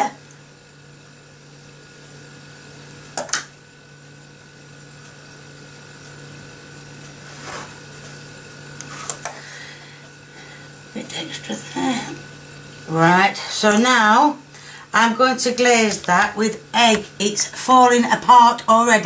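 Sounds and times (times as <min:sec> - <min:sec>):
steady low hum: 0:00.0 - 0:19.0
soft brushing: 0:07.2 - 0:07.8.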